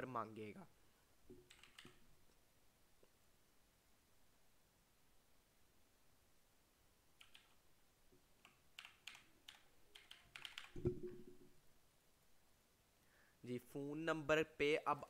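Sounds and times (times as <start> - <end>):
keyboard keystrokes: 1.4 - 2.0, 7.2 - 7.6, 8.4 - 11.2.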